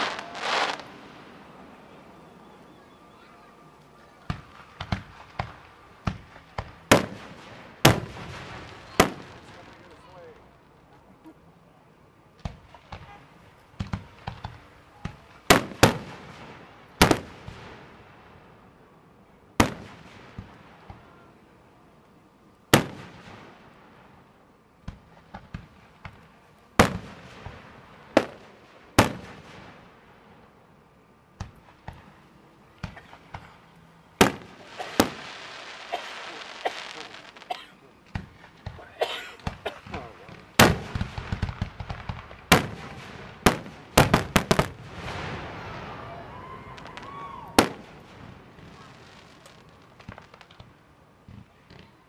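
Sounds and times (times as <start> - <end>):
firework shells booming: 0.0 - 2.0, 4.2 - 9.9, 12.4 - 17.9, 19.6 - 21.1, 22.7 - 24.1, 24.8 - 30.0, 31.4 - 51.9
hissing firework crackle: 0.0 - 11.2, 12.4 - 18.8, 19.6 - 52.0
small firework pops: 3.8 - 9.9, 12.4 - 16.3, 24.8 - 27.6, 31.4 - 32.2, 32.8 - 33.6, 34.2 - 45.4, 46.7 - 52.0.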